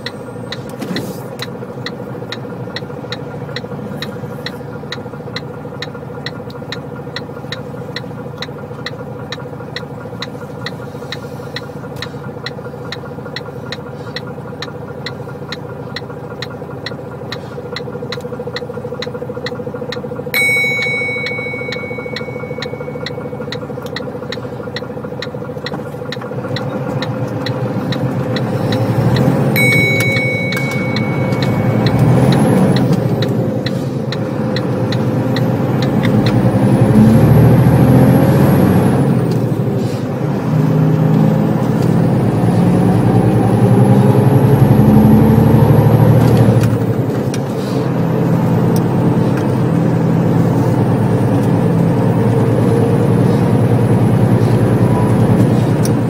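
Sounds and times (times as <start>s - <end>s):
passing lorries: 0.0s - 56.0s
truck engine droning: 0.0s - 56.0s
regular ticking: 1.4s - 36.9s
sharp high tone: 20.4s - 23.5s, 29.6s - 32.9s.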